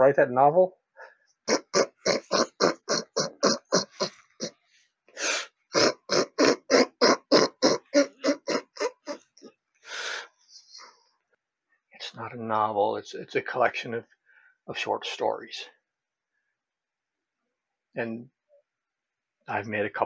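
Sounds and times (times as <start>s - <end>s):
man laughing: 1.5s - 4.5s, 5.7s - 9.5s.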